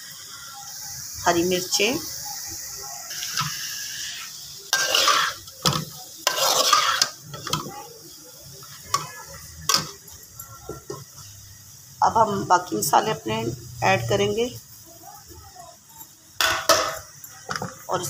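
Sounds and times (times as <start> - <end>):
soft sizzle of hot fat: 0.0 - 18.0
spoon scraping metal pan: 3.2 - 7.7.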